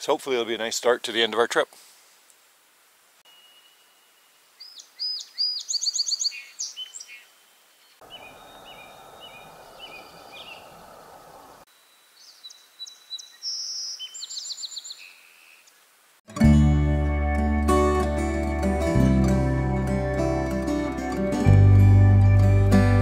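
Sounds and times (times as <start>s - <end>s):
lower whistled bird notes: 3.3s - 15.7s
songbirds trilling and chirping: 3.3s - 15.9s
steady rushing hiss: 8.0s - 11.7s.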